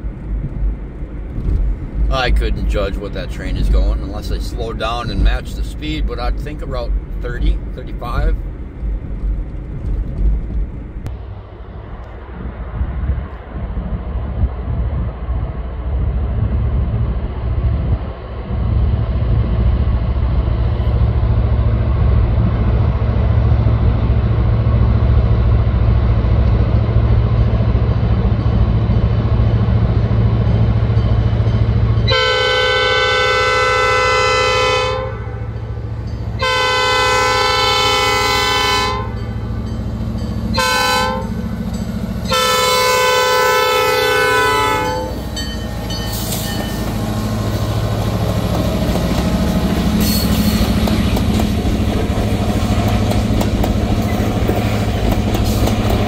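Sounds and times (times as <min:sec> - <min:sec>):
diesel locomotive engine rumbling: 0:00.0 - 0:56.0
train air horn blasts: 0:32.1 - 0:35.6, 0:36.4 - 0:39.4, 0:40.5 - 0:41.5, 0:42.2 - 0:45.4.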